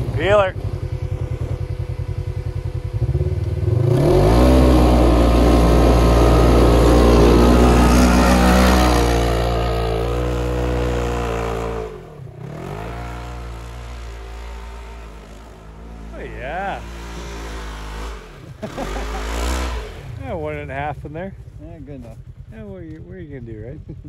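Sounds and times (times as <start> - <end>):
engine idling and revving: 0.0 - 24.0.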